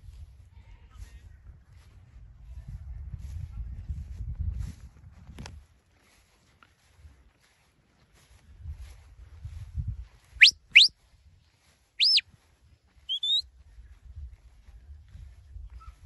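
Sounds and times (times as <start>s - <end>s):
shepherd's whistle commands: 10.4s - 10.9s, 12.0s - 12.2s, 13.0s - 13.4s.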